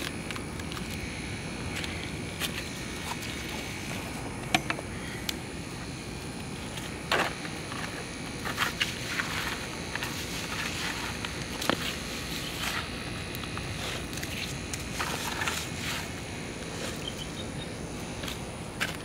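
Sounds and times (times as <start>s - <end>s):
broom and dustpan scraping concrete: 6.6s - 17.3s.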